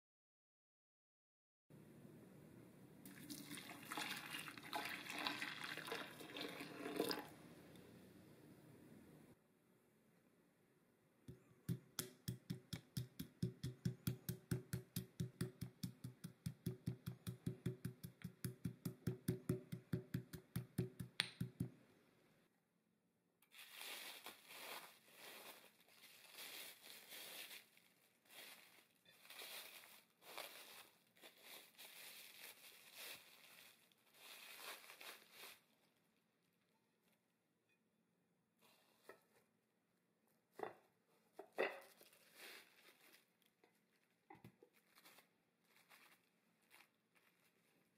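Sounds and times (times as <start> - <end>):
pestle pounding in marble mortar: 11.7 - 21.7
cling wrap crinkling: 23.4 - 36.0, 41.8 - 47.9.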